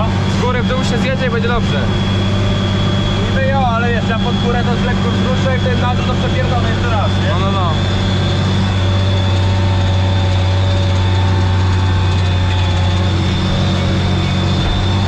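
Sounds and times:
faint high whine: 0.0s - 10.9s
tractor diesel engine droning: 0.0s - 15.0s.

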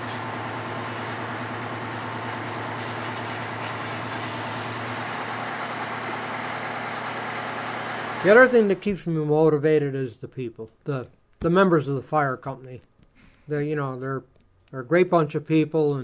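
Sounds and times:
low motor hum: 0.0s - 8.8s
pressure washer spray hissing: 0.0s - 8.8s.

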